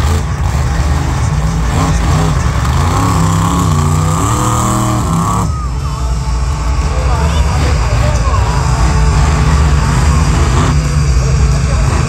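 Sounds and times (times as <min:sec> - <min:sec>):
monster truck engine revving: 0:00.0 - 0:12.0.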